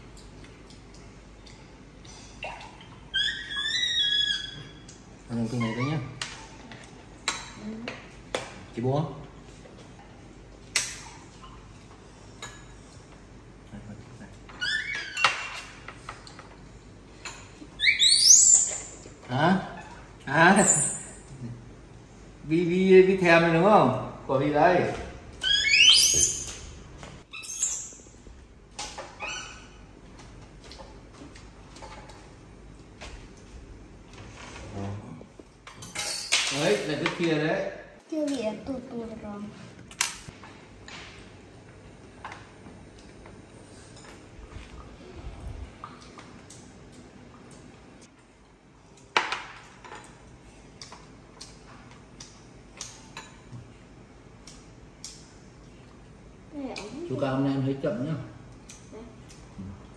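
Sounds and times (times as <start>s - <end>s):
baby monkey squeaking: 3.1s - 4.8s, 17.8s - 18.9s, 25.4s - 26.7s
utensils clinking on bowls: 35.6s - 37.3s.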